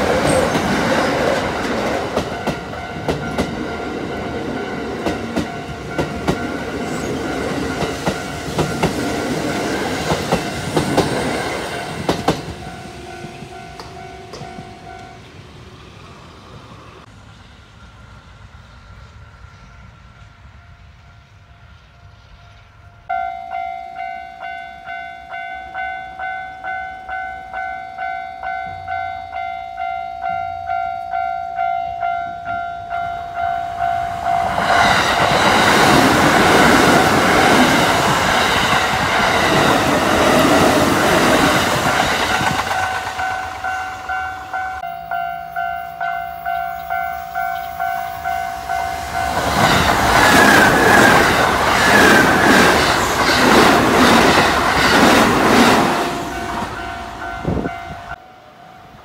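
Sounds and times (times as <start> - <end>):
train wheels clattering on rails: 0.0 - 15.2, 34.1 - 44.5, 48.7 - 58.2
approaching train noise: 0.0 - 59.0.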